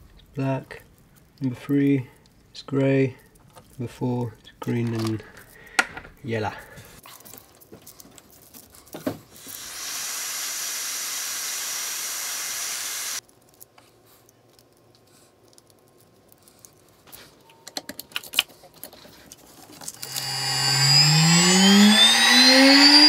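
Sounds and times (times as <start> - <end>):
steady hiss: 9.3 - 13.2.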